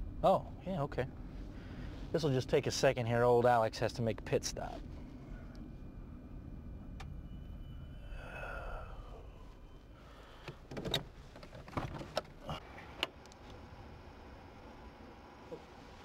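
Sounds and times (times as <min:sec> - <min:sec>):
engine and road rumble: 0:00.0 - 0:16.0.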